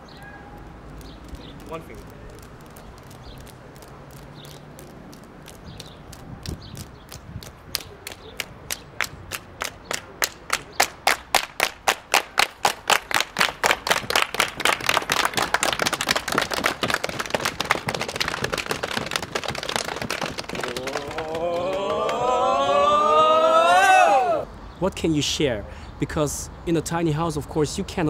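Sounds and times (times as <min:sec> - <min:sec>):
group clapping together: 0:04.5 - 0:24.4.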